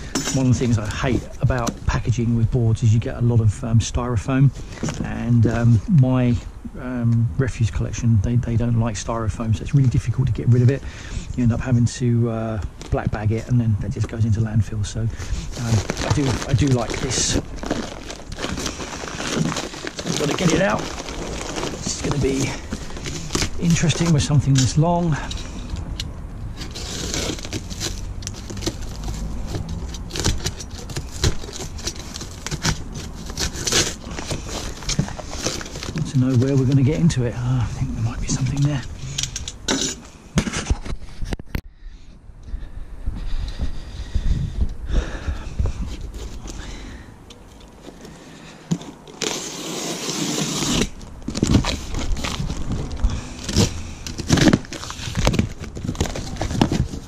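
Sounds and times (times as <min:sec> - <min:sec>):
cardboard crackling and knocking: 0:04.7 - 0:05.6, 0:15.2 - 0:25.5, 0:26.6 - 0:37.2, 0:47.8 - 0:57.0
box cutter slicing cardboard: 0:26.6 - 0:36.0, 0:49.1 - 0:52.5.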